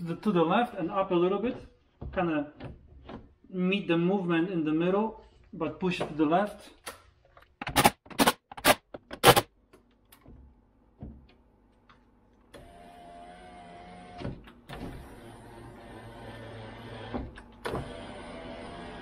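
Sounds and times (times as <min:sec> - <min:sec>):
power window motor whining: 0:12.6 - 0:19.0.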